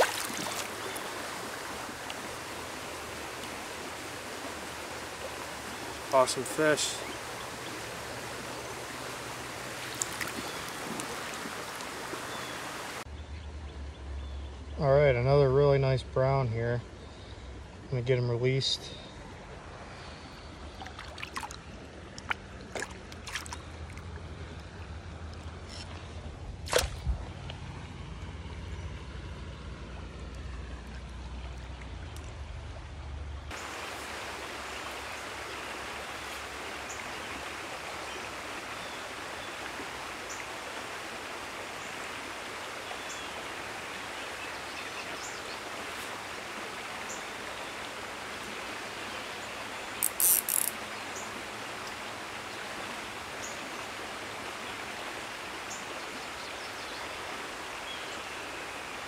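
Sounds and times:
water sloshing and splashing: 0:00.0 - 0:13.0, 0:20.6 - 0:27.9
stream flowing: 0:00.0 - 0:13.1, 0:14.6 - 0:59.0.

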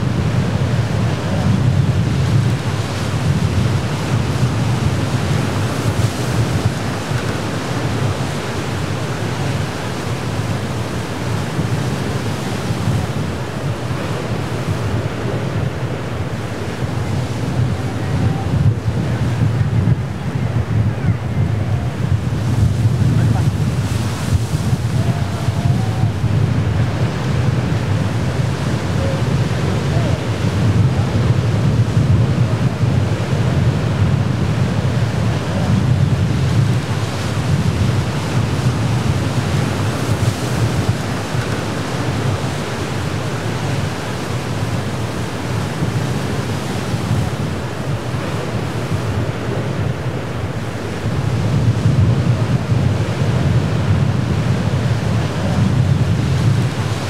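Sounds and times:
surf breaking over rocks: 0:00.0 - 0:57.0
wind buffeting microphone: 0:00.0 - 0:57.0.

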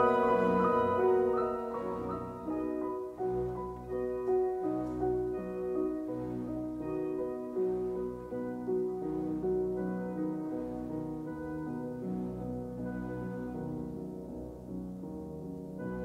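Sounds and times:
slow classical piano piece: 0:00.0 - 0:16.0.

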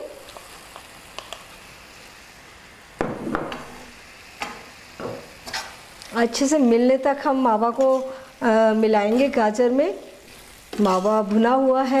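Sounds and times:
carrots sizzling in a pan: 0:00.0 - 0:12.0.

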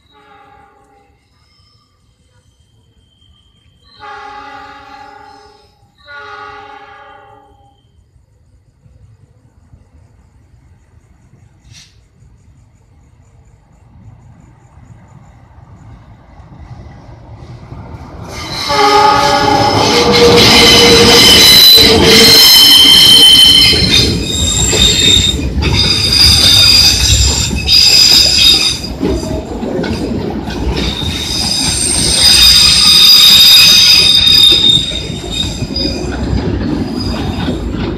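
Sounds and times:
freight train rumbling past: 0:00.0 - 0:37.9
steel wheels squealing: 0:18.2 - 0:37.9.

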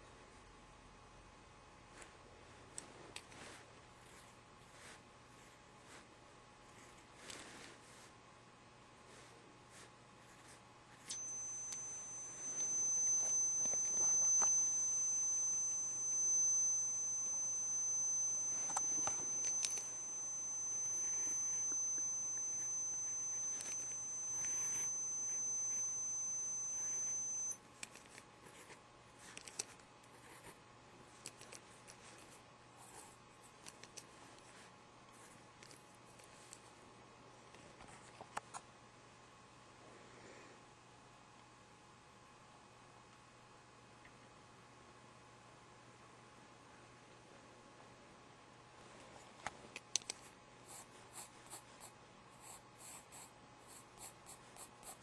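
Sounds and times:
steady high-pitched tone: 0:09.1 - 0:28.8.

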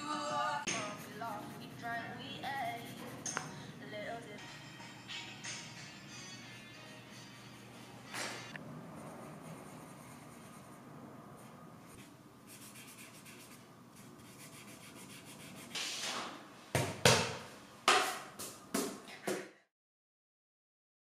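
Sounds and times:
fingertip rubbing paper: 0:09.0 - 0:10.8, 0:11.9 - 0:15.8
pencil scratching on paper: 0:09.0 - 0:10.8, 0:11.4 - 0:15.8
sharp knocks: 0:15.8 - 0:19.0.

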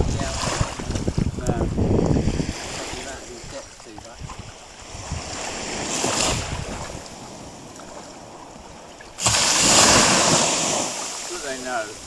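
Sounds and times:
small waves lapping shore: 0:00.0 - 0:12.0.

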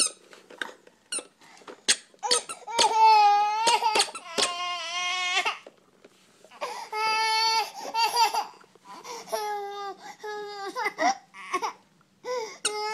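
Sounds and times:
baby crying: 0:02.2 - 0:05.6, 0:06.5 - 0:12.9.

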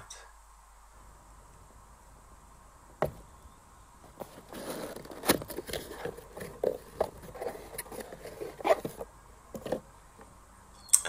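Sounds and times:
cardboard box flaps scraping: 0:04.0 - 0:09.1.

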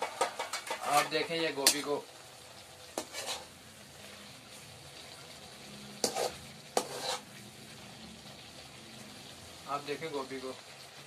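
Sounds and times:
metal spoon scraping a metal pot: 0:00.0 - 0:01.8, 0:03.0 - 0:03.5, 0:06.0 - 0:07.4
cauliflower sizzling in a pot: 0:00.0 - 0:11.0.

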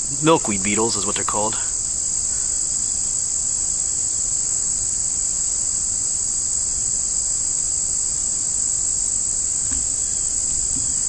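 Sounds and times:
insects singing: 0:00.0 - 0:05.6, 0:08.0 - 0:11.0.

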